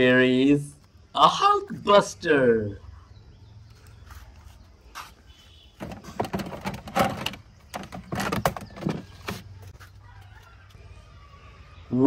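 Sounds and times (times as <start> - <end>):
plastic toys clattering: 5.8 - 9.6.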